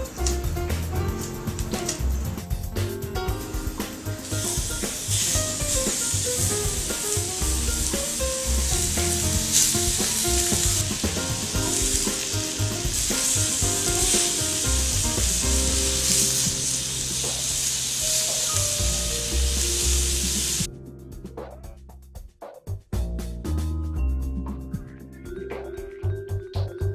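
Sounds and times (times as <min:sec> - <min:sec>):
background music: 0:00.0 - 0:22.2, 0:23.0 - 0:26.9
meat sizzling on grill pan: 0:03.4 - 0:20.7.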